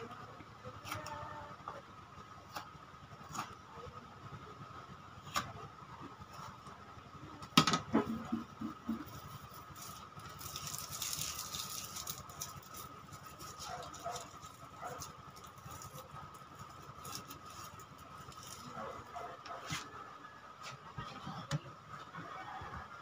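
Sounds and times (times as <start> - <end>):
faint high hum: 0.0 - 23.0.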